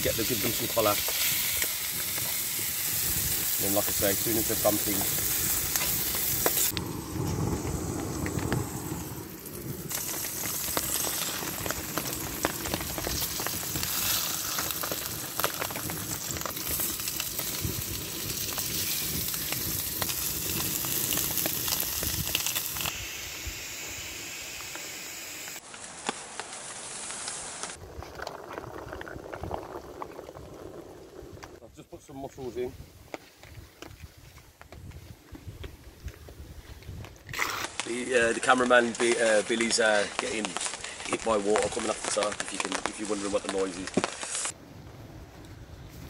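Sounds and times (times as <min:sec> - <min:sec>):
fish sizzling in a pan: 0:00.0 - 0:06.8, 0:07.5 - 0:27.8, 0:37.4 - 0:44.6.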